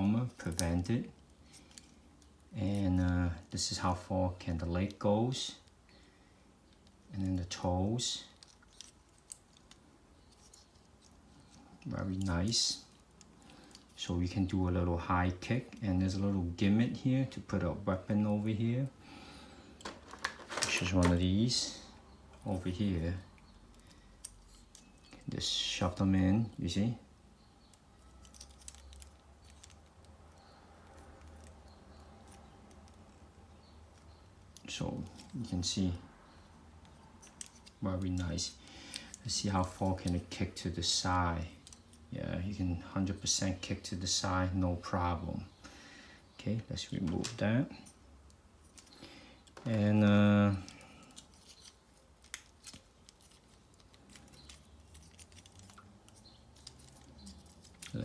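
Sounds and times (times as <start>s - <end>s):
plastic parts clicking: 19.8s - 21.2s.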